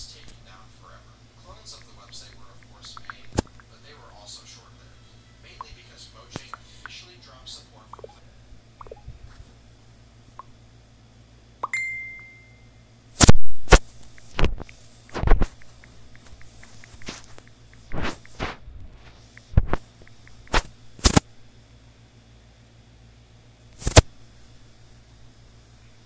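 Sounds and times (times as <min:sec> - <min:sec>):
ding: 0:11.6 - 0:12.7.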